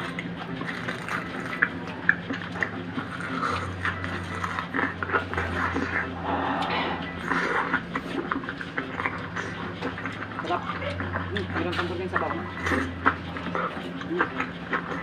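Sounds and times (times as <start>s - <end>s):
chewing and mouth noises: 0.0s - 15.0s
low steady hum: 4.8s - 10.0s.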